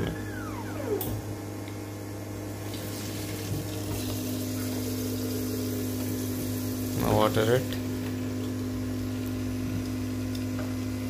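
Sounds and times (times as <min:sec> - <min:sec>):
second steady tone: 0:00.0 - 0:01.5
small pump motor humming: 0:00.0 - 0:11.0.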